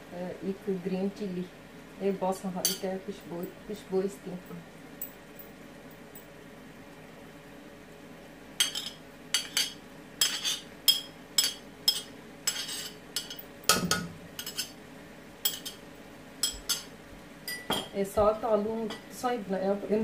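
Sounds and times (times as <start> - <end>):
faint steady hum: 0.0 - 20.0
metal spoon clinking on plate: 8.6 - 14.8, 15.4 - 15.8, 16.4 - 16.9, 17.5 - 17.9.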